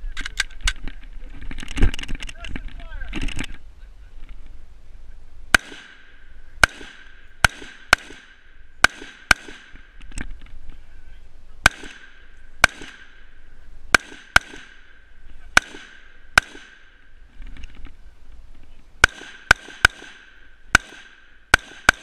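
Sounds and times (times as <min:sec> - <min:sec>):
rifle shots with echo: 0:05.5 - 0:10.0, 0:11.6 - 0:17.1, 0:19.0 - 0:22.0.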